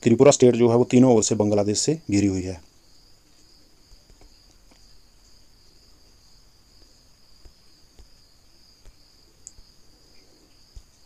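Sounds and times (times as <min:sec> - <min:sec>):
faint high-pitched whine: 0:00.0 - 0:11.0
faint ticks: 0:03.3 - 0:05.0, 0:06.8 - 0:11.0.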